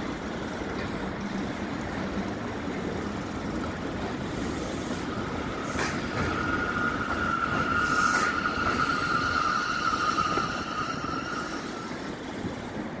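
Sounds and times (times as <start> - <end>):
subway train braking: 0.0 - 13.0
high brake squeal: 5.6 - 12.0.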